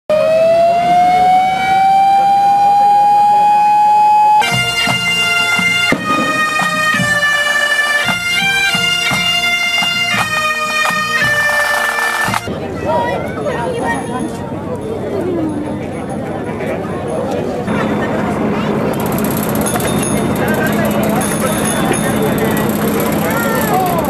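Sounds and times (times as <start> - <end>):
long held tone: 0.1 - 12.4
bagpipes playing a tune: 0.1 - 12.5
drum beats: 4.4 - 12.5.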